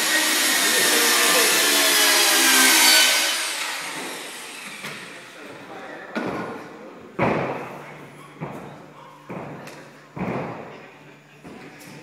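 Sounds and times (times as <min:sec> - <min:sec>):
gymnast thudding on spring floor: 0:08.4 - 0:10.7.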